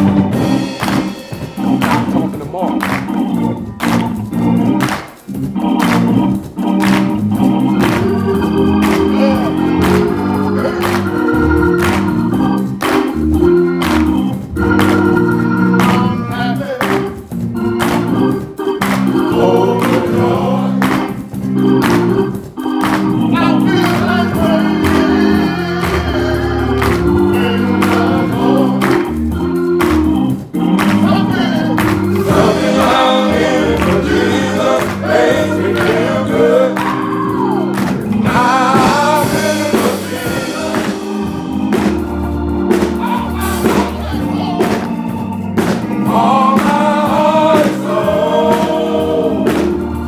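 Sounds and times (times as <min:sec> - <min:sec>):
sharp percussive hits: 0:00.0 - 0:16.0
organ chords: 0:00.0 - 0:50.0
men's choir singing: 0:05.6 - 0:22.3, 0:22.9 - 0:50.0.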